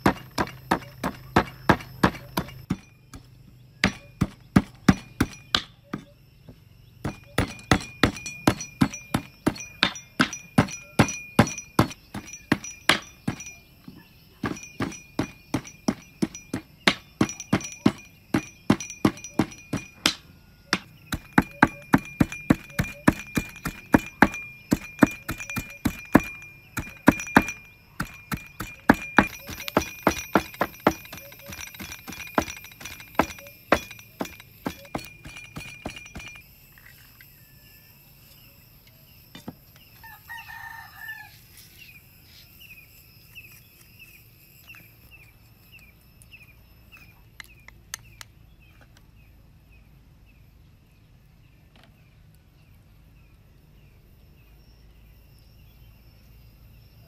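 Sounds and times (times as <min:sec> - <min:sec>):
rooster crowing: 0:40.0 - 0:41.6.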